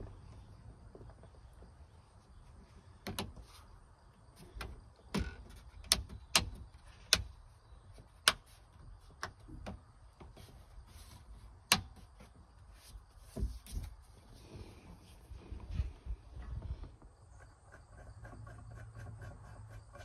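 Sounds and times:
plastic clicks and knocks: 4.6 - 7.3.

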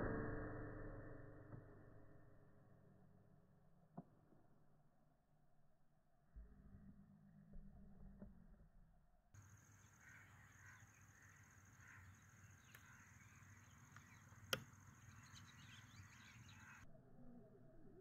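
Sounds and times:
distant bird calls: 9.4 - 17.5
faint high whine: 9.4 - 18.0
sharp click: 13.9 - 15.4.

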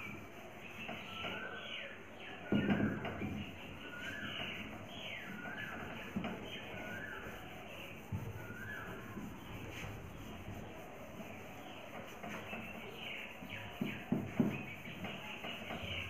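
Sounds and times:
duster rubbing a whiteboard: 0.0 - 16.0
bird calling gliding note: 0.1 - 11.8
knocks: 13.8 - 16.0.

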